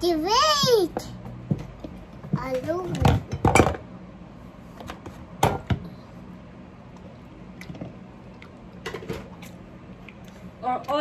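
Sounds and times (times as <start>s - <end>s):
soft wet squishing: 6.9s - 11.0s.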